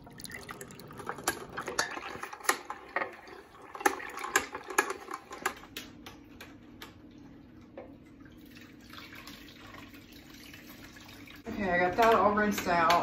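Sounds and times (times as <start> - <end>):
kitchen clicks and knocks: 1.0 - 7.0, 11.6 - 13.0.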